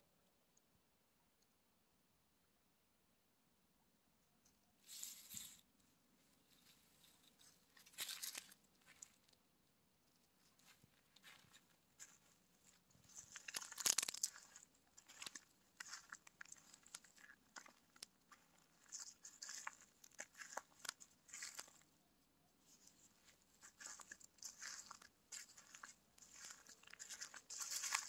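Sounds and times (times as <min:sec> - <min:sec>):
footsteps crunching dry leaves: 0:07.8 - 0:09.0, 0:11.2 - 0:12.3, 0:13.0 - 0:21.9, 0:22.7 - 0:28.0.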